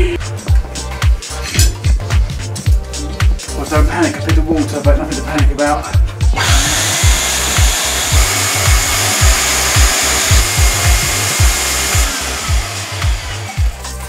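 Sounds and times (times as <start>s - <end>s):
background music with steady beat: 0.0s - 14.0s
vacuum motor running with whine: 6.4s - 13.8s.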